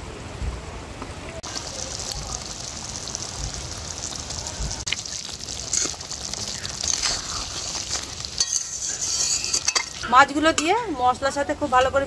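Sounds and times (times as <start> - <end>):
curry bubbling and spattering: 1.4 - 10.1
spatula scraping a wok: 5.6 - 10.1.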